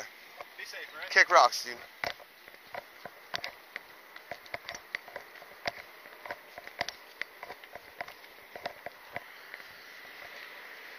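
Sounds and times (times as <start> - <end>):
footsteps on wooden planks: 1.8 - 10.5.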